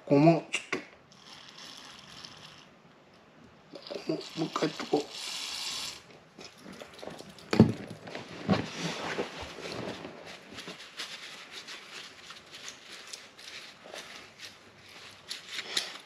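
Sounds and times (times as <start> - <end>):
tissue paper rustling: 8.0 - 16.0.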